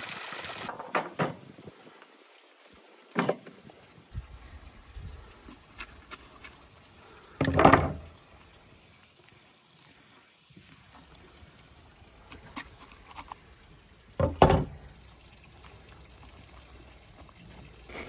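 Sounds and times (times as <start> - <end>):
wet squelch: 5.1 - 7.4, 9.0 - 13.9.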